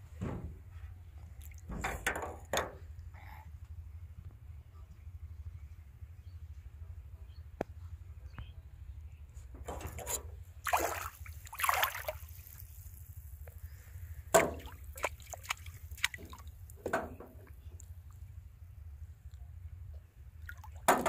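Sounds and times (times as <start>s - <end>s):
water splashing and sloshing: 9.6s - 13.5s, 14.3s - 18.2s, 20.4s - 21.0s.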